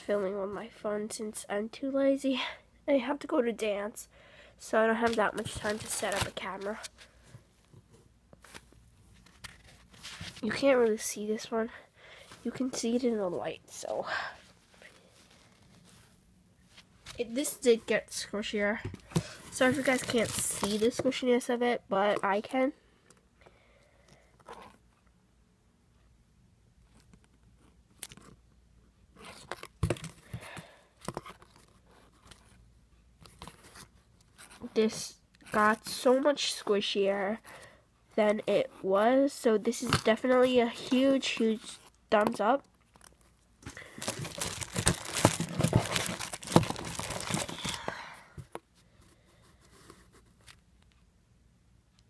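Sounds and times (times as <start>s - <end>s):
faint handling noise: 4.9s - 11.4s, 12.2s - 21.3s, 39.7s - 51.1s
plastic packaging crinkling: 5.0s - 6.8s, 19.5s - 21.0s, 42.8s - 48.0s
squishy toys rustling in cardboard box: 5.0s - 7.0s, 19.2s - 21.0s, 42.9s - 48.5s.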